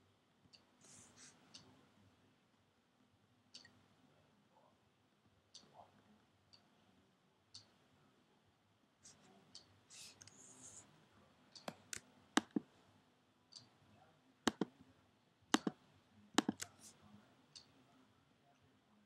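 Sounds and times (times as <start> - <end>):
computer mouse clicking: 11.6 - 12.7, 14.5 - 14.7, 15.6 - 15.8, 16.4 - 16.9.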